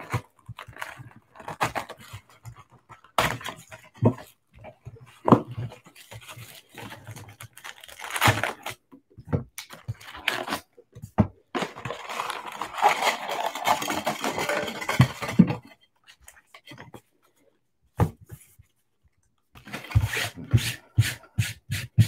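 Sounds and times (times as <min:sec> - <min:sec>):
cellophane wrapper crinkling: 0:06.2 - 0:08.8, 0:11.6 - 0:15.0
foil packs rustling: 0:06.2 - 0:08.8, 0:11.6 - 0:15.3.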